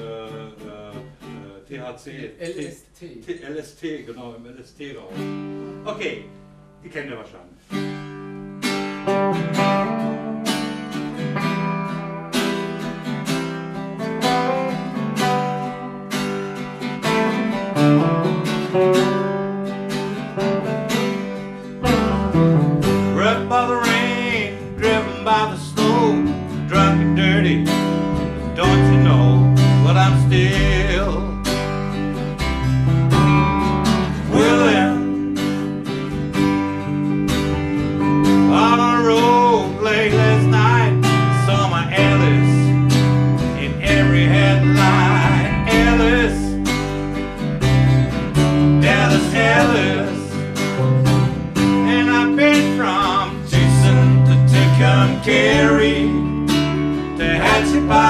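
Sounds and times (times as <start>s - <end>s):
acoustic guitar strumming: 5.1s - 6.8s, 7.6s - 58.0s
electric guitar: 7.7s - 58.0s
upright bass: 17.0s - 58.0s
voices singing: 28.6s - 31.3s, 34.3s - 35.4s, 38.5s - 42.8s, 43.6s - 46.8s, 48.8s - 50.5s, 51.7s - 56.4s, 57.2s - 58.0s.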